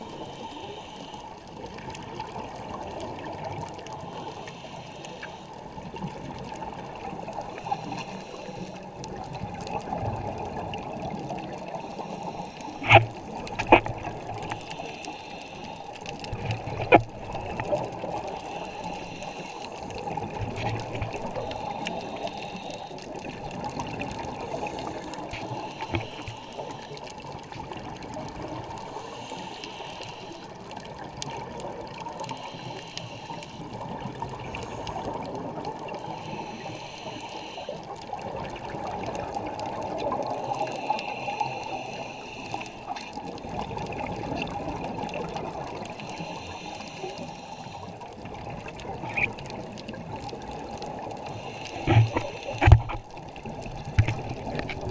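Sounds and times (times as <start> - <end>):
regulator hissing breath: 0.0 - 1.6, 4.0 - 5.7, 7.4 - 9.0, 11.7 - 17.0, 18.0 - 20.2, 20.8 - 27.2, 28.7 - 30.7, 32.2 - 38.0, 40.2 - 43.4, 45.8 - 48.2, 51.2 - 53.0
bubbling exhaled air underwater: 0.0 - 54.9.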